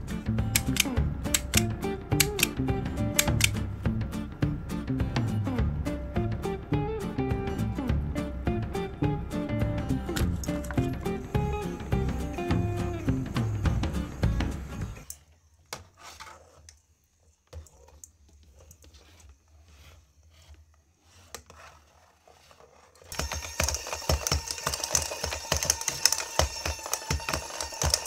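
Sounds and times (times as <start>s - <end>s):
toy motor whirring and rattling: 0.6s - 1.6s, 19.0s - 28.0s.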